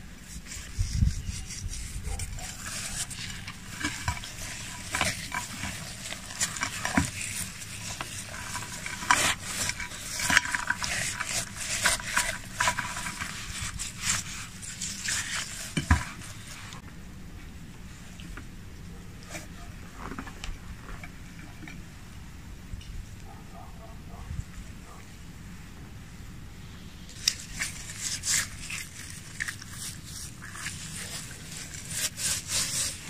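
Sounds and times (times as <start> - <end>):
gritty scraping: 0.0 - 16.9, 27.0 - 33.0.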